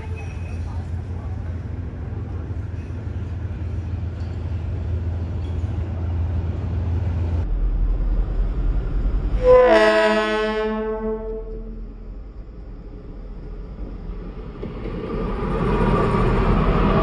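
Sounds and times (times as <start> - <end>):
diesel locomotive engine rumble: 0.0 - 17.0
train horn blast: 9.4 - 11.9.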